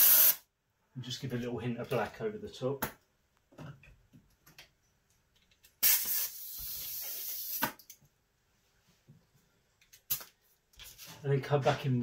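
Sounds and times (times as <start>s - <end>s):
airbrush spraying hiss: 0.0s - 0.4s, 5.8s - 7.6s.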